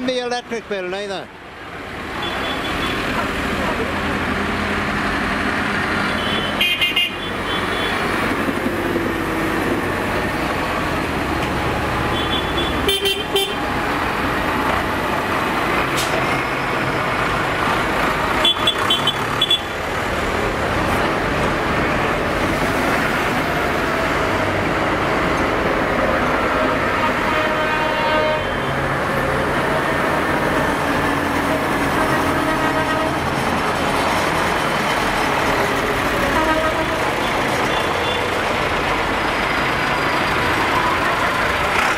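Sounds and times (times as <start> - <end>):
tractor diesel engines running: 0.0 - 41.9
horns tooting: 2.2 - 3.1, 6.0 - 8.2, 12.1 - 13.7, 26.6 - 28.8, 32.0 - 33.4, 36.2 - 38.4.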